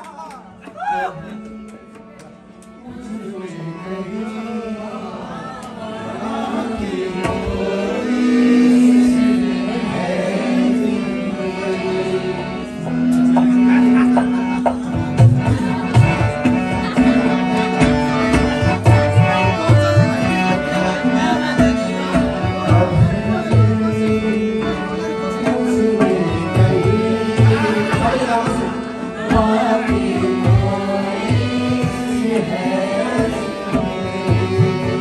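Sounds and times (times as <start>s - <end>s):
harmonium chords: 0.0s - 35.0s
man singing: 2.9s - 12.7s, 18.8s - 35.0s.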